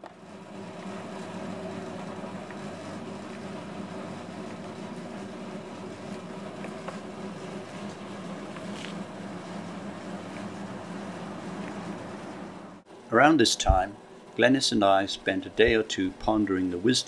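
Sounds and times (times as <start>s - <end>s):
cement mixer running: 0.0s - 12.8s.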